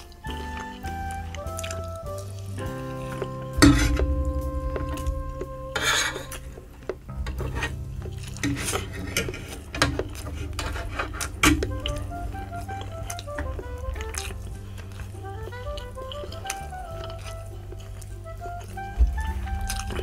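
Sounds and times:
background music: 0:00.0 - 0:20.0
cutlery scraping a metal tray: 0:08.4 - 0:11.7.

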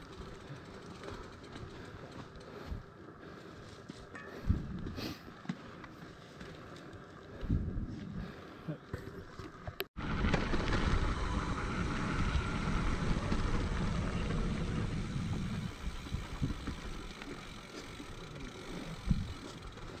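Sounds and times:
bike rattling: 0:00.0 - 0:20.0
bike tyre rumble: 0:00.0 - 0:20.0
wind buffeting microphone: 0:04.3 - 0:05.0, 0:07.3 - 0:08.4, 0:10.0 - 0:17.6, 0:18.8 - 0:20.0.

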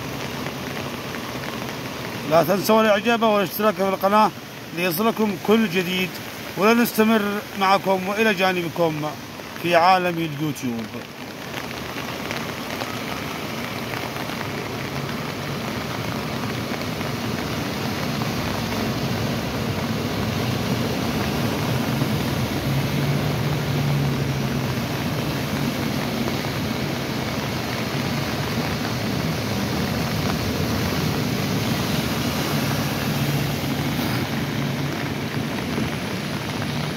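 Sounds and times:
floodwater rushing: 0:00.0 - 0:36.9
car engine hum: 0:14.0 - 0:36.9.

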